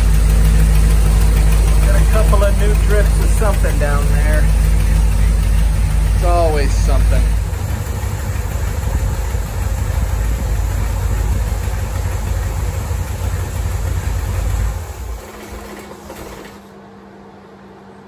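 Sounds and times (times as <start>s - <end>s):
car engine idling: 0.0s - 16.8s.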